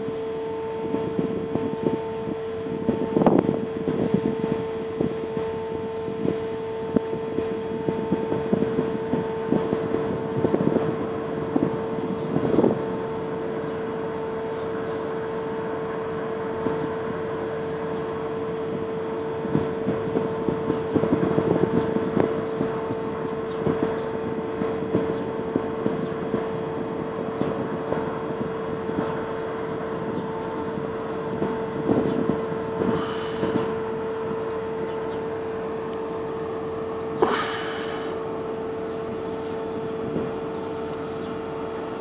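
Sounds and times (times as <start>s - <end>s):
ship machinery droning: 0.0s - 42.0s
wind rumble on microphone: 0.0s - 42.0s
small birds chirping: 0.2s - 1.3s, 3.6s - 7.2s, 8.5s - 8.8s, 11.5s - 12.7s, 14.5s - 16.2s, 17.4s - 18.2s, 19.1s - 42.0s.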